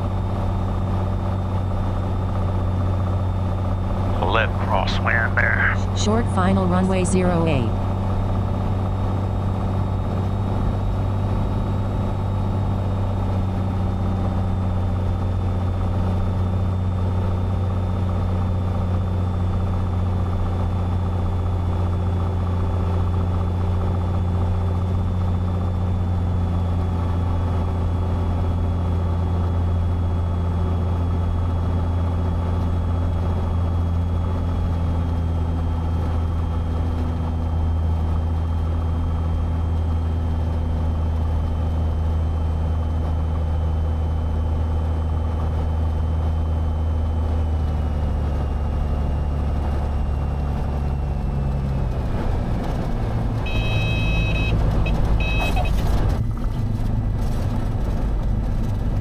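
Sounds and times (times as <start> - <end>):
aircraft engine and propeller: 0.0 - 59.0
high pitched warning horn: 53.4 - 55.9.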